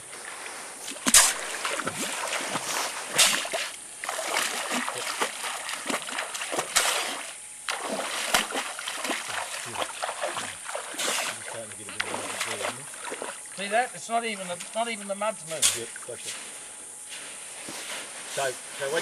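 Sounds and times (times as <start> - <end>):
feet splashing in muddy water: 0.0 - 13.7.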